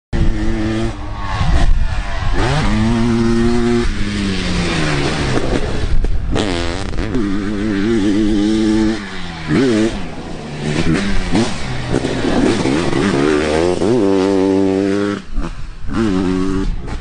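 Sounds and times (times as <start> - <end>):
motorcycle engine revving hard: 0.2 - 17.0.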